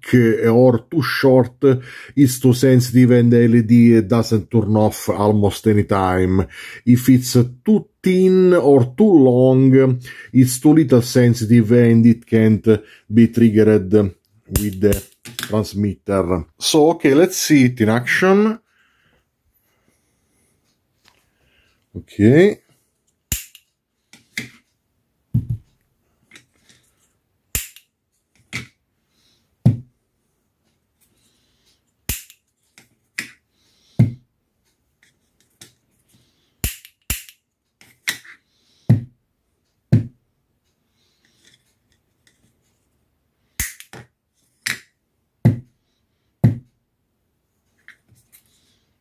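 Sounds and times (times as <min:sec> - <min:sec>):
piezo lighter clicks: 0:23.3 - 0:23.6, 0:27.6 - 0:27.8, 0:32.1 - 0:32.4, 0:36.6 - 0:37.4.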